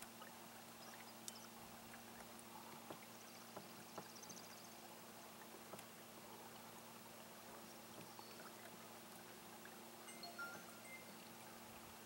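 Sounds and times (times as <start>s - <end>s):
light ticks and knocks: 5.7s - 5.9s.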